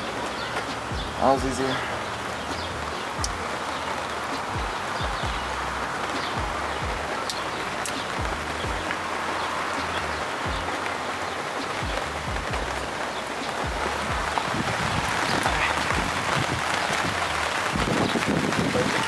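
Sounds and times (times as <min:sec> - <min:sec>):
steady rain falling: 0:00.0 - 0:19.0
faint low thumps: 0:02.5 - 0:03.5, 0:04.4 - 0:07.2, 0:08.0 - 0:09.0, 0:09.8 - 0:10.9, 0:11.6 - 0:18.5.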